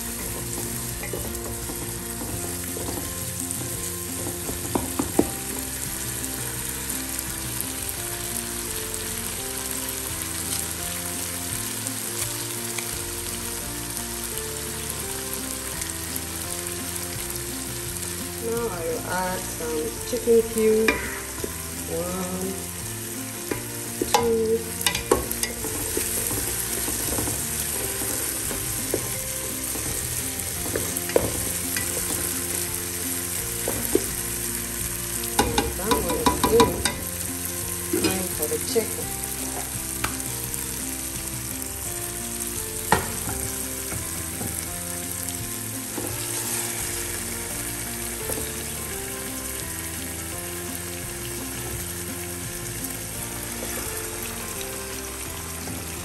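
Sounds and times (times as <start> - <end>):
food sizzling in a pot: 0.0 - 56.0
spoon knocking against pot: 23.5 - 27.4, 35.4 - 37.1.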